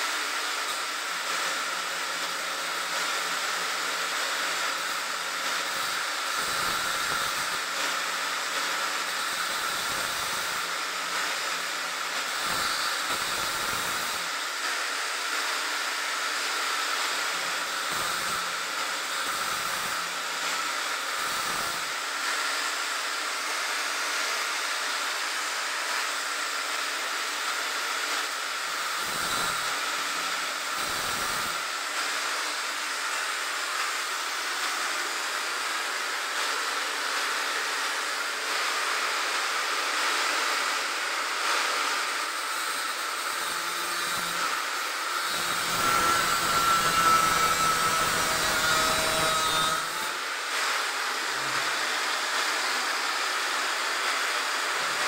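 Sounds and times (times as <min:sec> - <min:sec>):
angle grinder cutting steel: 0:00.0 - 0:55.0.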